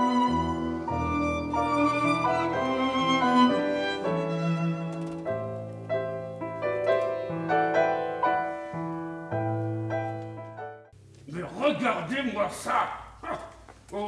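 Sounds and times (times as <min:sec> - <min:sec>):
slow piano notes: 0:00.0 - 0:11.1.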